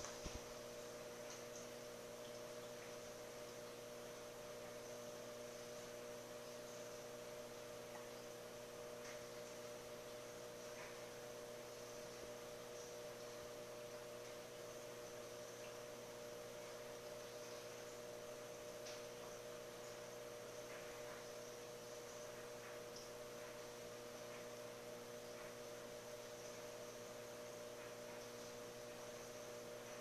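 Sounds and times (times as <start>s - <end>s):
faint tiny ticks: 0.0s - 7.1s, 16.6s - 30.0s
aquarium equipment humming: 0.0s - 30.0s.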